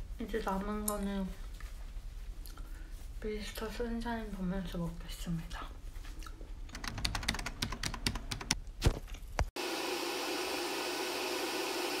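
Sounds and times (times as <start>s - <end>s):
clicks and taps: 6.7s - 8.6s.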